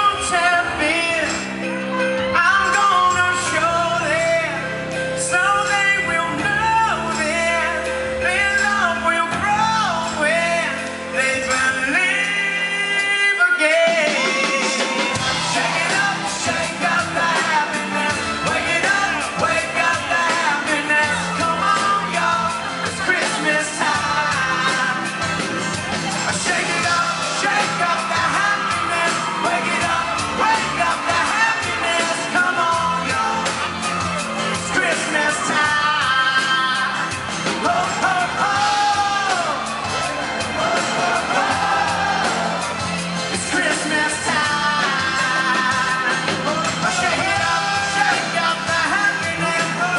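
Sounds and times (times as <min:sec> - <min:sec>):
man singing lead: 0:00.0 - 0:49.9
pop-rock band playing: 0:00.0 - 0:49.9
drums and cymbals: 0:13.8 - 0:49.9.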